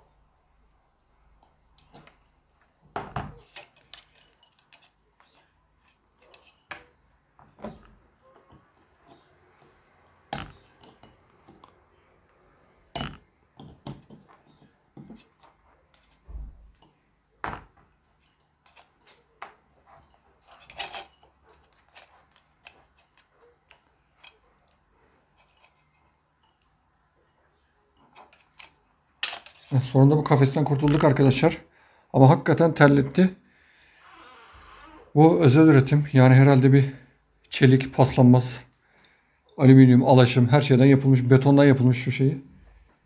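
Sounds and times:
metallic clinks and knocks: 0:03.1 - 0:09.3, 0:10.3 - 0:11.8, 0:12.9 - 0:17.0, 0:17.6 - 0:24.5.

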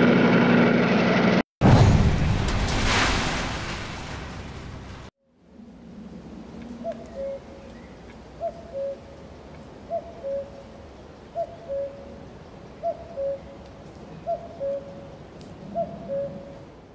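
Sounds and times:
cuckoo calling: 0:06.6 - 0:16.7.

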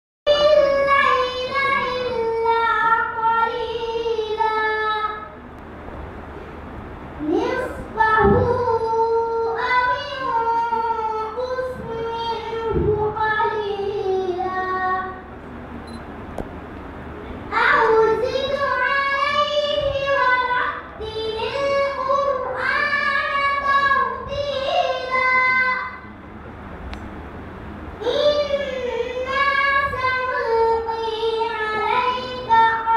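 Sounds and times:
girl chanting melodically: 0:00.3 - 0:05.3, 0:17.5 - 0:26.1, 0:28.0 - 0:32.9.

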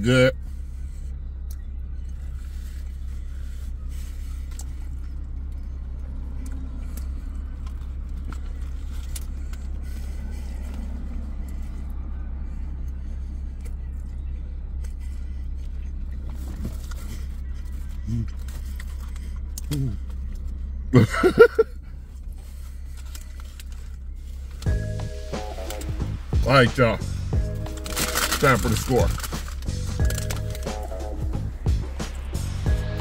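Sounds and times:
car idling hum from inside: 0:00.0 - 0:33.0
faint clicks and rustles: 0:00.8 - 0:20.8, 0:21.8 - 0:24.7, 0:27.6 - 0:31.0.

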